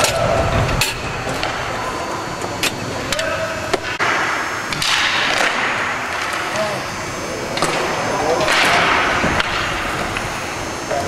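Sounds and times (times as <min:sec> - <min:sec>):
indoor rink ambience: 0:00.0 - 0:11.0
hockey sticks and puck clacking: 0:02.7 - 0:06.6, 0:07.5 - 0:10.3.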